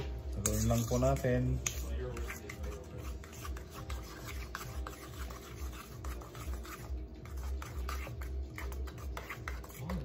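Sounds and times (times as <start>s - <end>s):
utensil scraping a metal bowl: 0.0s - 10.0s.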